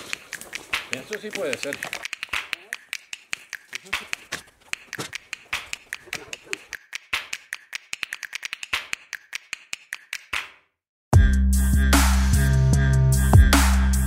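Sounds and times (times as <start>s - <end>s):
rapid sharp clicks and taps: 0.0s - 10.6s.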